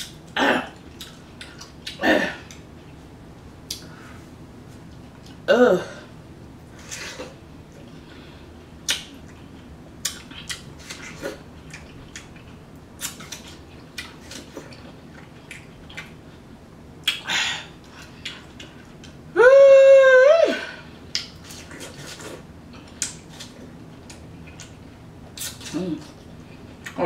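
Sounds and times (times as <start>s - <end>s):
wet chewing and smacking: 0.0s - 3.0s, 8.8s - 16.4s, 17.8s - 19.3s, 21.1s - 27.0s.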